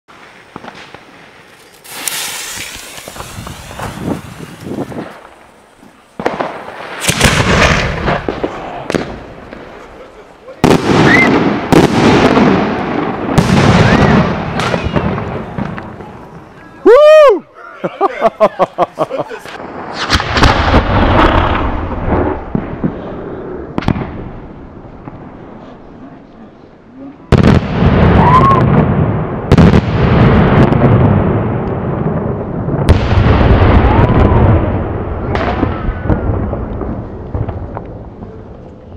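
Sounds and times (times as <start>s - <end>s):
firework shell bangs and cracks: 0.5s - 9.6s
fuse hissing: 1.5s - 6.1s
firework salute bangs: 1.8s - 17.3s.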